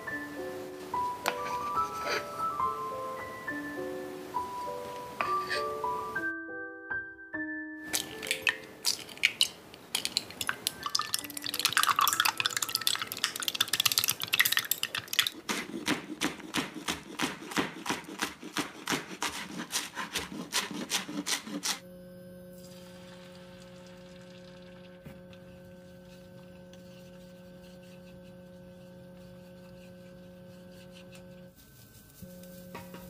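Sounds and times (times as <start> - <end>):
eggs beaten in glass cup: 7.9 - 21.8
knife chopping on cutting board: 15.5 - 21.8
electric cooktop hum: 21.8 - 27.6.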